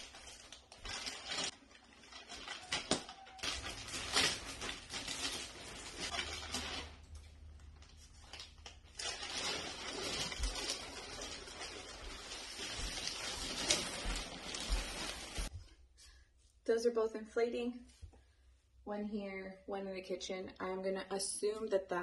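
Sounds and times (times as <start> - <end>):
plastic wrapping crinkling: 0.0 - 15.5.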